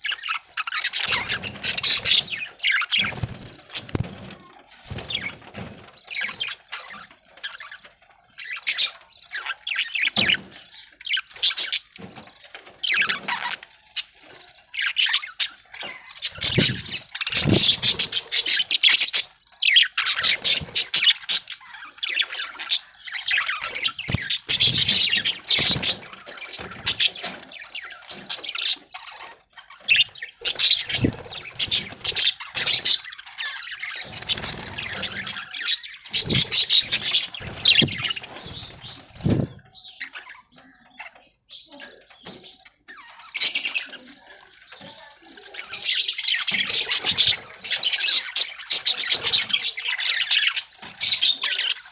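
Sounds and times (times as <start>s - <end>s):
budgerigars chattering and chirping: 0.0s - 51.9s.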